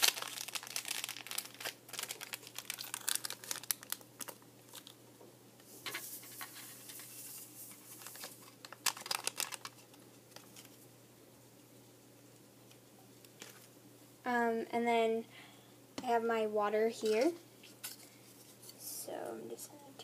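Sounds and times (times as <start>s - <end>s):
plastic packet crinkling: 0.0s - 5.0s, 7.0s - 10.8s.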